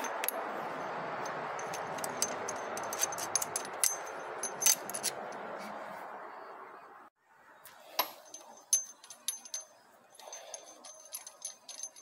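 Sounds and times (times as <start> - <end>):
metal tools clinking: 0.0 - 5.5, 8.0 - 12.0.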